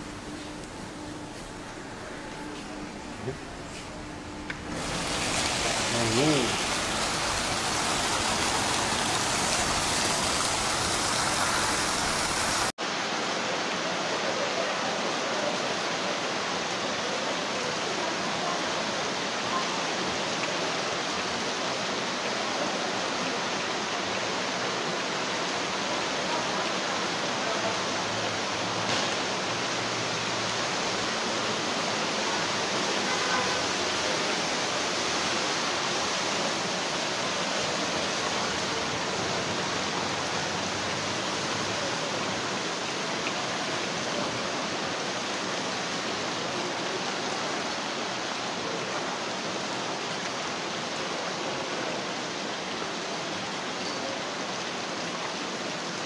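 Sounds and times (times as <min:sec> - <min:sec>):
heavy rain pouring: 0:00.0 - 0:56.0
water running over pavement: 0:03.2 - 0:12.7.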